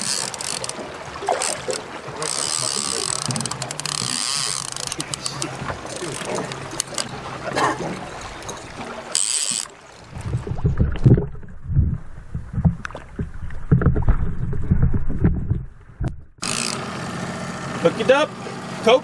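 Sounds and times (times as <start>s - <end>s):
outboard motor humming: 0.0s - 10.8s, 16.3s - 19.0s
water sloshing and splashing: 0.0s - 16.8s.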